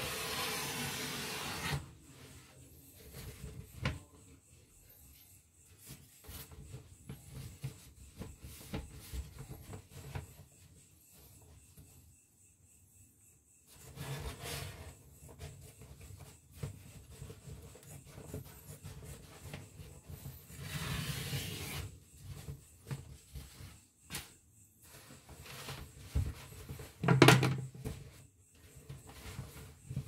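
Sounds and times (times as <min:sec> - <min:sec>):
objects rubbing and scraping: 0:00.0 - 0:04.2, 0:13.8 - 0:23.8.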